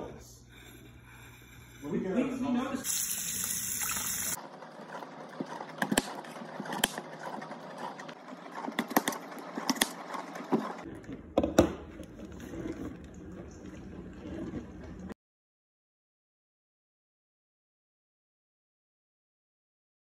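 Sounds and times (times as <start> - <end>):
running tap water: 2.8 - 4.4.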